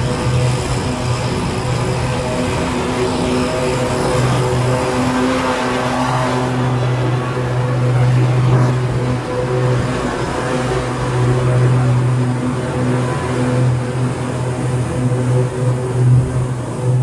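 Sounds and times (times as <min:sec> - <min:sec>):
lawn mower engine humming: 0:00.0 - 0:17.0.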